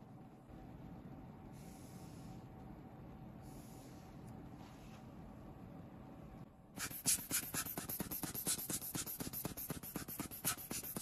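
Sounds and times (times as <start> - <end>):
hand tool scratching phone edge: 6.8 - 11.0.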